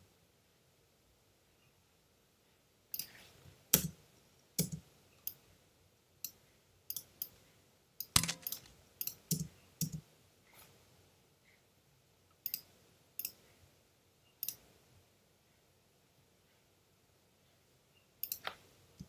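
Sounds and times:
computer mouse clicking: 3.0 - 3.2, 6.2 - 7.4, 8.0 - 10.0, 14.4 - 14.6, 18.2 - 18.6.

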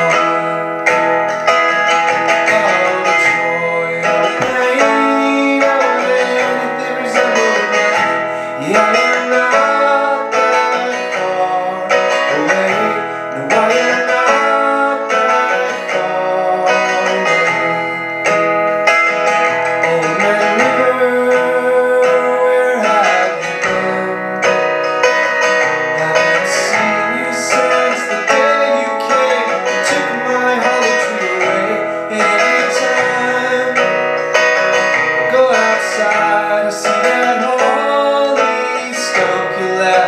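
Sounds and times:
man singing: 0.0 - 18.6, 19.2 - 40.0
acoustic guitar strumming: 0.0 - 40.0.

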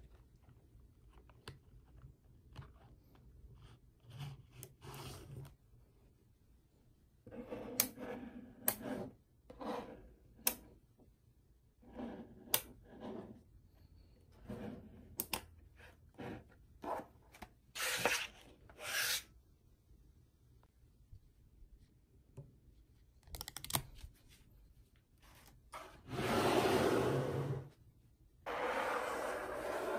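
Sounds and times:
magnetic balls sliding and grating: 28.5 - 29.9.

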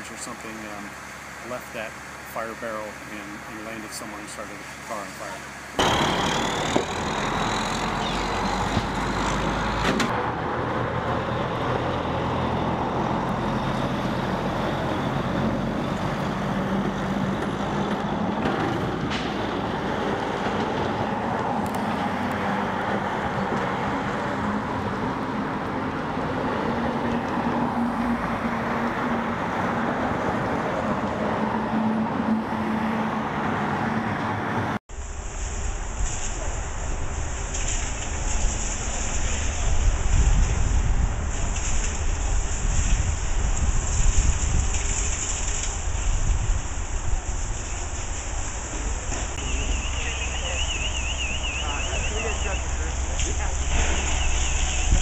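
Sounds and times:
heavy truck engines running: 0.0 - 55.0.

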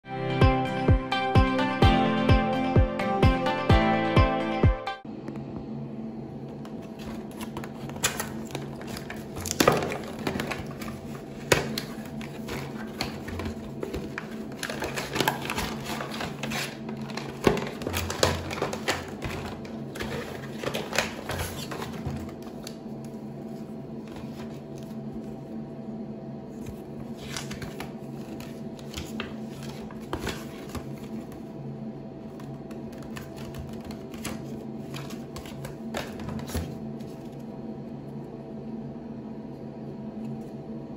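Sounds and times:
steady low hum: 5.0 - 40.9
paper leaflet unfolding: 6.8 - 22.8, 26.6 - 31.4
plastic pouch crinkling: 7.0 - 22.8.

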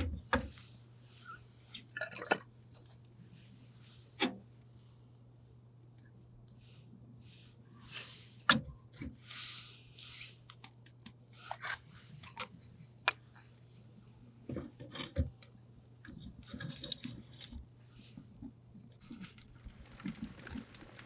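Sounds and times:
wood fire crackling and popping: 19.0 - 21.0.

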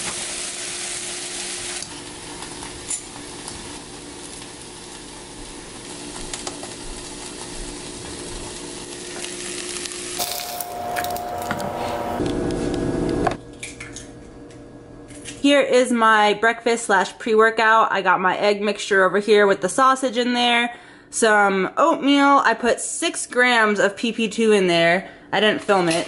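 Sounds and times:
vegetables sizzling in a saucepan: 0.0 - 12.2.

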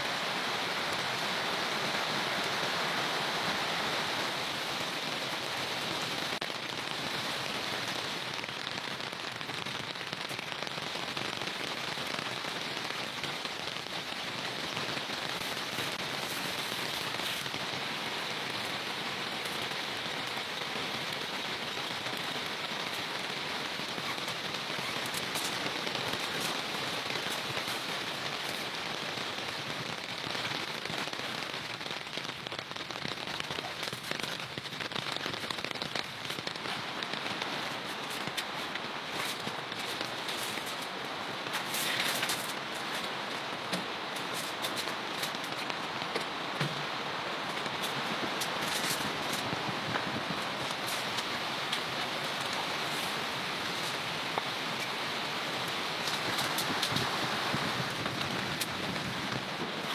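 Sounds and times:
rain pattering on wet ground: 0.0 - 59.9.

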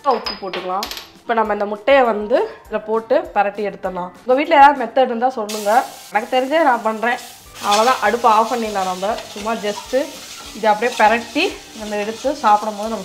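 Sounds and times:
egg sizzling in a pan: 5.5 - 13.0
stirring in a pan: 6.9 - 13.0.

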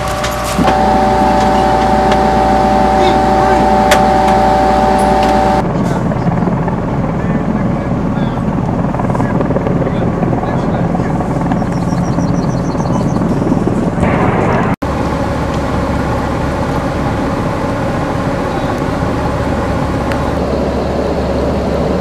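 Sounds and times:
diesel engine rumbling: 0.0 - 8.4.

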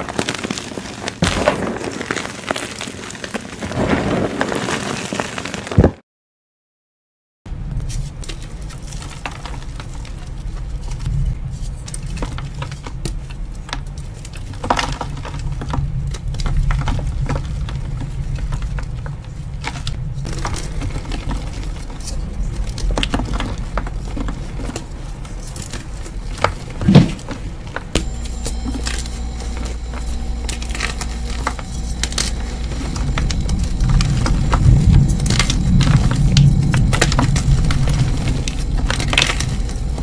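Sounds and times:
chalk crumbling crunches: 0.0 - 5.8, 28.0 - 40.0
dull low rumble: 17.0 - 40.0.

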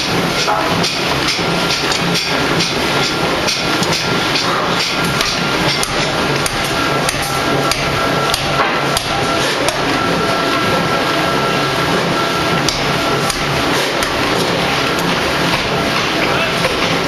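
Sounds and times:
sharp metallic knocks: 0.0 - 9.9, 12.6 - 14.6
ring rolling machine running: 0.0 - 17.0.

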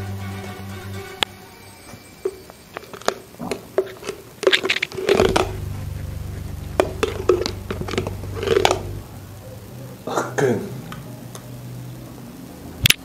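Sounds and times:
low hum: 1.8 - 10.1.

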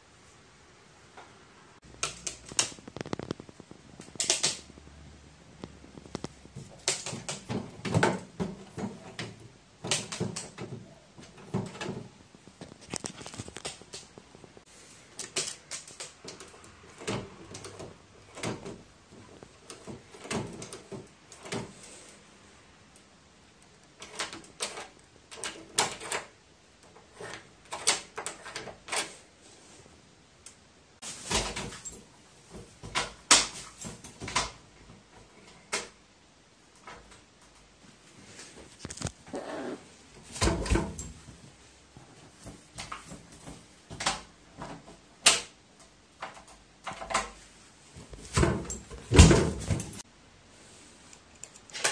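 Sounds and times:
door latch clicking and clacking: 6.6 - 12.1, 24.0 - 26.4, 27.6 - 29.2, 45.2 - 45.6.

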